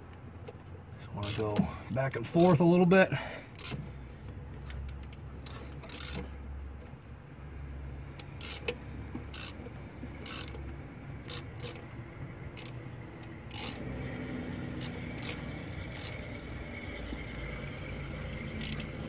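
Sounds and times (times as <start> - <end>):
hand ratchet clicking: 1.0 - 1.6, 2.4 - 2.6, 3.5 - 3.8, 4.7 - 6.2, 8.1 - 13.8, 14.7 - 16.3, 18.5 - 19.0.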